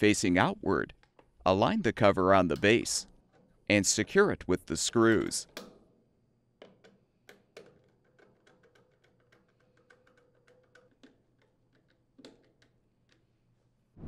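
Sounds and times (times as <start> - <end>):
nut driver clicking on screws: 6.6 - 13.3.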